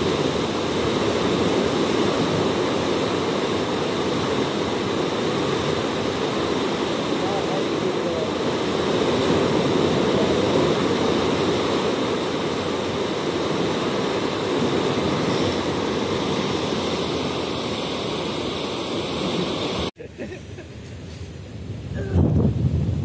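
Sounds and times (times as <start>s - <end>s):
turbulent water rushing: 0.0s - 20.0s
quiet outdoor background: 19.9s - 23.0s.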